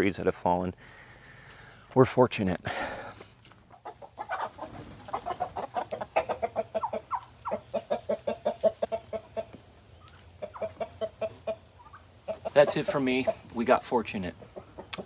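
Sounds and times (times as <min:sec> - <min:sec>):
hens clucking: 0:03.4 - 0:15.0.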